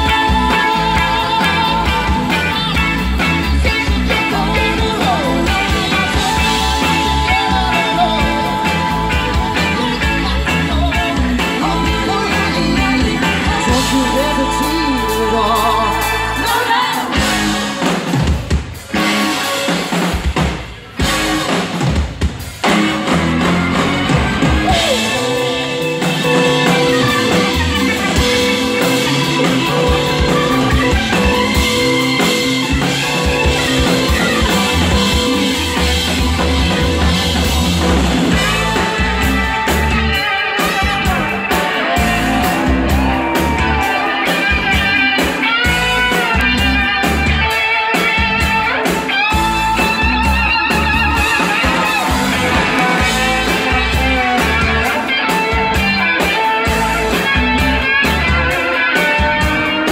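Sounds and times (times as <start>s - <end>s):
person singing lead vocal: 0.0s - 18.0s, 24.6s - 37.5s
live rock band playing: 0.0s - 59.9s.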